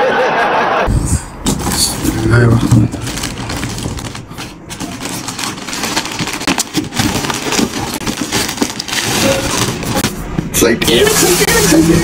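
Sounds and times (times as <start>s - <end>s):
plastic bag crinkling and tearing: 2.8s - 10.1s.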